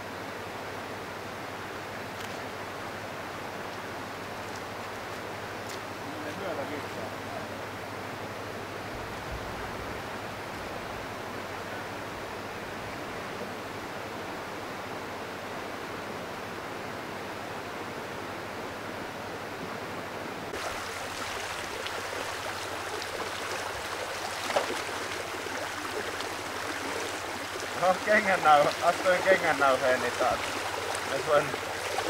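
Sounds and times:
river rushing roar: 0.0 - 32.0
shallow stream babbling: 0.0 - 32.0
water splashes: 20.5 - 32.0.

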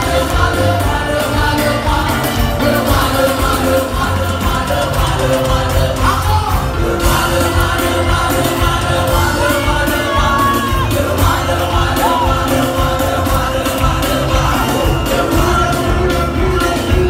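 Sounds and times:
voices singing: 0.0 - 17.0
worship music through pa: 0.0 - 17.0
crowd shouts: 9.4 - 12.6.

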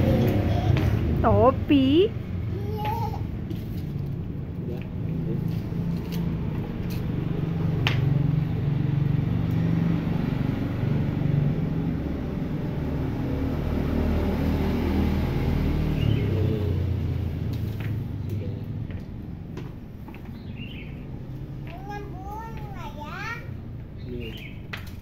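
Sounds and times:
engine rumble: 0.0 - 25.0.

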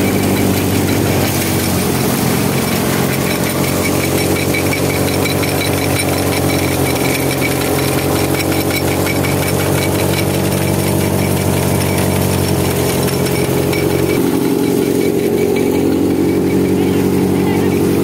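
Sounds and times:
thresher mechanical drone: 0.0 - 18.0.

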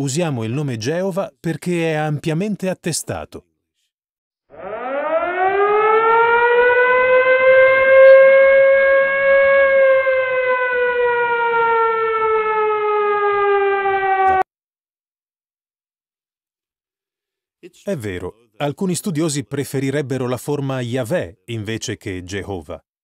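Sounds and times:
air-raid siren wailing: 4.5 - 14.5.

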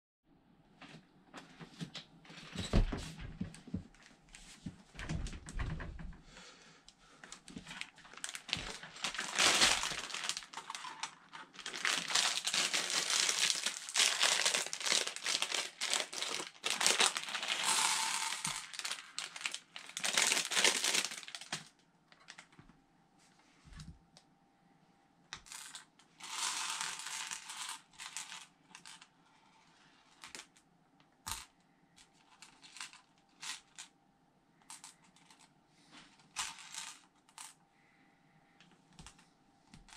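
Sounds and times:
plastic bag crinkling: 7.6 - 22.5, 26.2 - 28.5.

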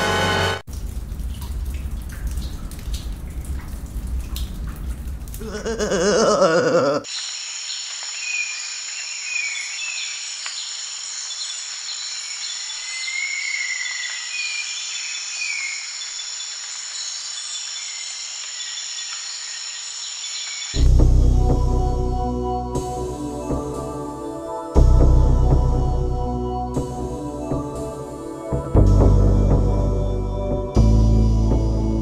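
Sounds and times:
insects buzzing: 6.0 - 20.8.

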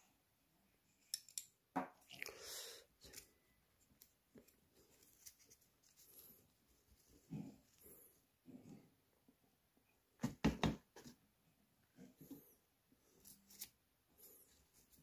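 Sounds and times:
soft rustling: 3.1 - 8.3.

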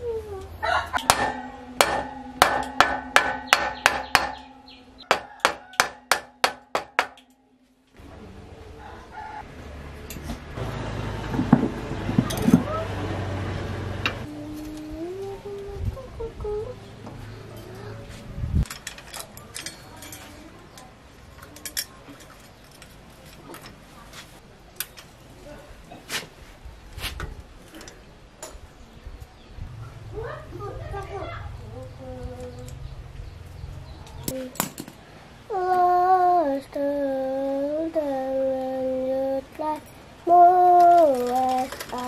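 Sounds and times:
hammer striking wooden block: 1.0 - 7.3
steady ringing tone: 1.0 - 7.9.

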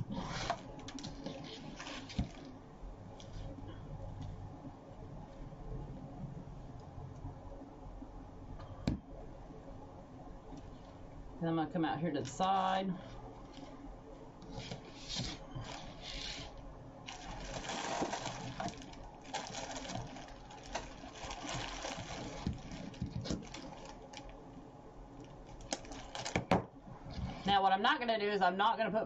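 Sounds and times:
plastic sleeve crinkling: 0.0 - 3.6, 12.2 - 13.8, 14.4 - 24.6, 25.2 - 26.6
artificial flower stems rustling: 0.0 - 3.9, 12.1 - 24.6, 25.2 - 27.6.

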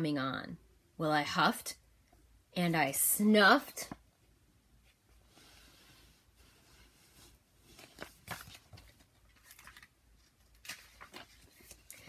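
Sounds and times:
paper pages rustling: 6.8 - 12.0.

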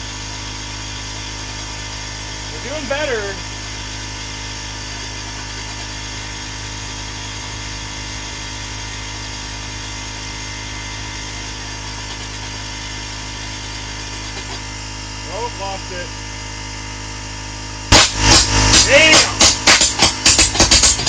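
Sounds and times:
constant machine hum: 0.0 - 21.0
burner rushing roar: 18.7 - 19.8.

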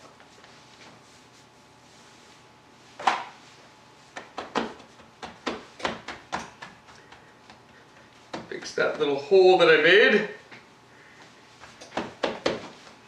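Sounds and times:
hands slapping dough: 4.1 - 9.0, 11.6 - 13.0.

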